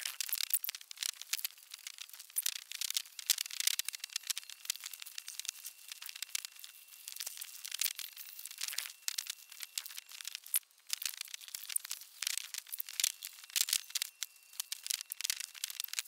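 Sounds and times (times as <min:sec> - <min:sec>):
plastic bags and paper crinkling: 0:00.0 - 0:16.0
faint steady high tone: 0:03.0 - 0:16.0.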